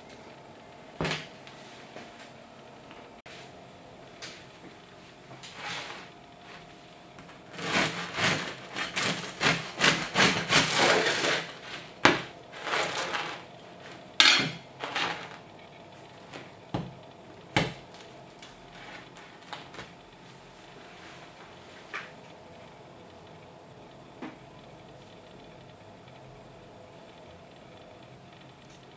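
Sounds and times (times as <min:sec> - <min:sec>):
bread knife sawing crust: 0:07.5 - 0:13.4
knocks on cutting board: 0:17.6 - 0:17.8.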